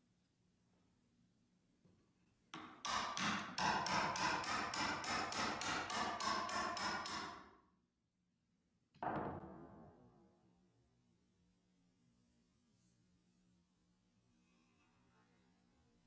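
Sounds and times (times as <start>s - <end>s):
hammer tapping chisel: 2.5s - 7.4s.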